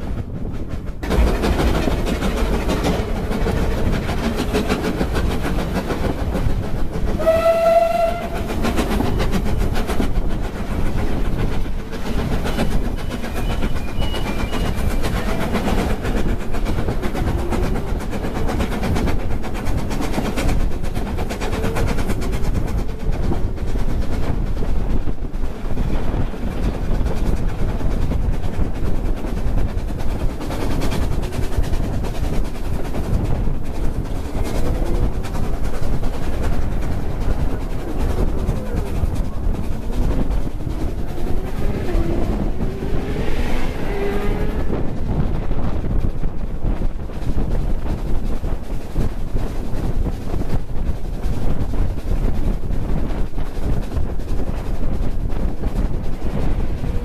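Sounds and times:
train wheels rumbling on rails: 0:00.0 - 0:57.0
steam whistle blast: 0:07.2 - 0:08.4.

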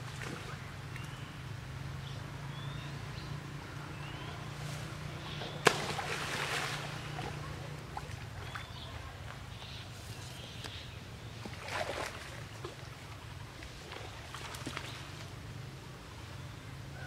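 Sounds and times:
water sloshing: 0:04.6 - 0:09.6, 0:11.3 - 0:15.4
sharp water splash: 0:05.5 - 0:08.6.

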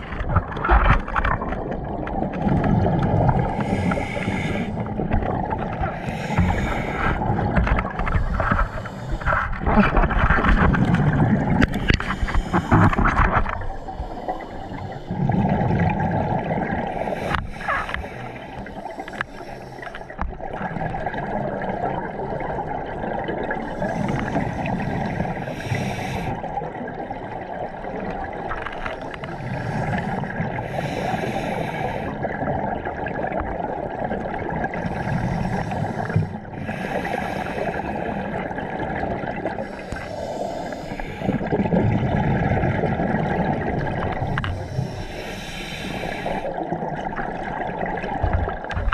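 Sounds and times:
bubbling exhaled air: 0:00.0 - 0:28.4, 0:29.0 - 0:48.9
diver breathing through regulator: 0:03.4 - 0:05.0, 0:05.8 - 0:10.2, 0:11.6 - 0:15.5, 0:16.8 - 0:20.2, 0:23.6 - 0:26.4, 0:28.9 - 0:32.3, 0:34.8 - 0:38.4, 0:39.5 - 0:41.8, 0:44.1 - 0:46.6.

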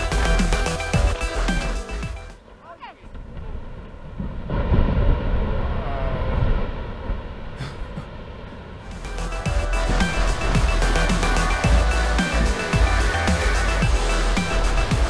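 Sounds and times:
low rushing rumble: 0:00.0 - 0:15.0.

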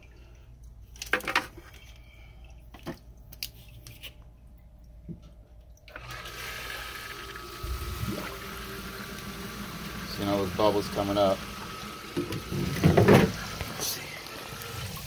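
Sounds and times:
sump pump motor hum: 0:05.2 - 0:15.0
water churning and bubbling: 0:05.9 - 0:15.0.

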